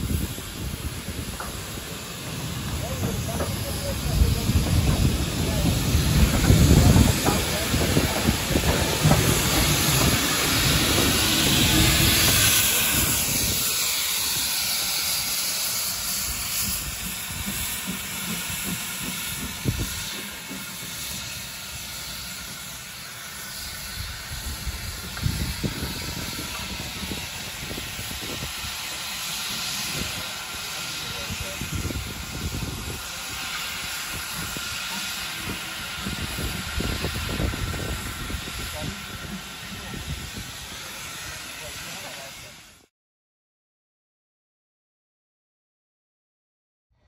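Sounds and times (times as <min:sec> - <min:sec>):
locomotive rumble: 0:00.0 - 0:42.6
steam locomotive hissing: 0:00.0 - 0:42.9.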